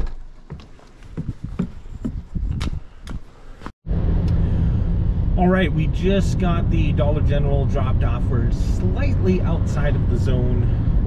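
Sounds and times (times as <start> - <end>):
footsteps on muddy ground: 0.0 - 3.3
car rumble inside cabin: 3.9 - 11.0.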